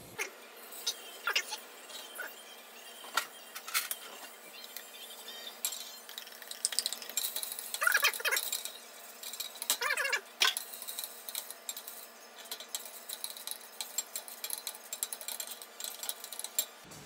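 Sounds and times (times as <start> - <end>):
spoon clinking against glass: 5.4 - 16.8.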